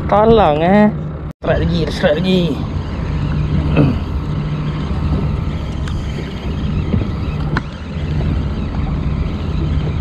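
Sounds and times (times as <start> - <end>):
outboard motor humming: 0.0 - 10.0
wind on microphone: 2.6 - 10.0.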